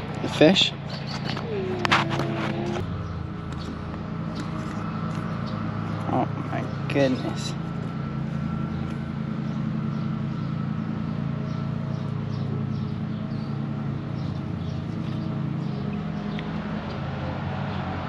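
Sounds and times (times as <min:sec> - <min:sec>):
low mechanical hum: 0:00.0 - 0:18.0.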